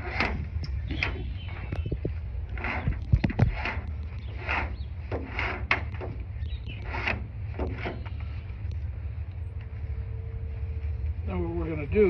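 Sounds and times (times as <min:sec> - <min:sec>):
rope sliding and rasping: 0:00.0 - 0:08.6
steady low rumble: 0:00.0 - 0:12.0.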